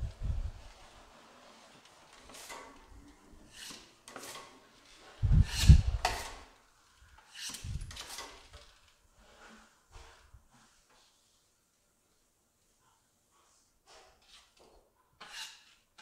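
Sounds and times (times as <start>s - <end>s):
trowel scraping joint compound: 1.1s - 10.8s, 13.9s - 16.0s.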